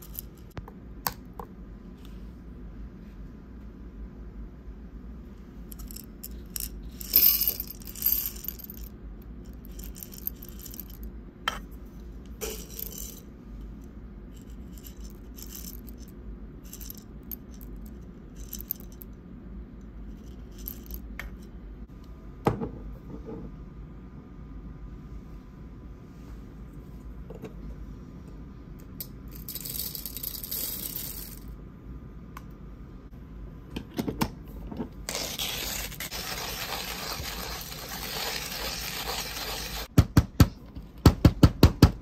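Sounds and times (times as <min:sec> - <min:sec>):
coffee beans rattling into metal cup: 0:05.7 - 0:11.0, 0:12.4 - 0:13.3, 0:14.4 - 0:16.1, 0:16.7 - 0:19.0, 0:29.4 - 0:31.5, 0:35.1 - 0:39.9.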